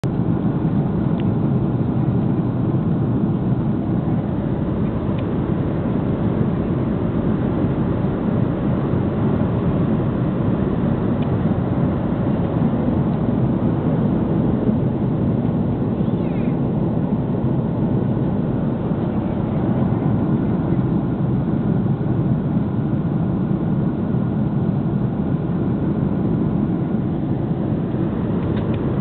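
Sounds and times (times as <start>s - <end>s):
airplane cabin engine roar: 0.0s - 29.0s.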